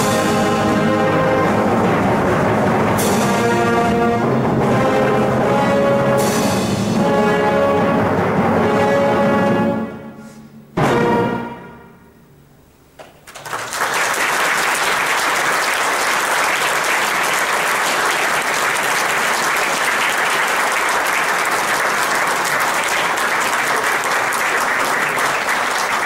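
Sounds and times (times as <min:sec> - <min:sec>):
audience applause: 0:13.0 - 0:26.0.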